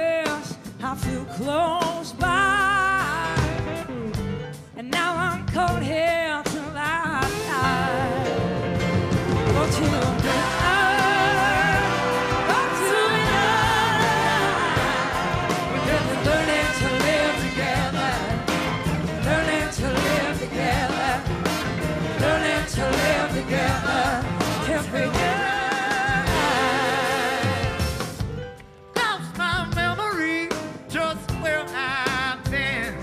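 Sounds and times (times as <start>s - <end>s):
live soul rock band: 0.0s - 33.0s
saxophone: 9.2s - 23.8s
people singing: 9.5s - 28.2s.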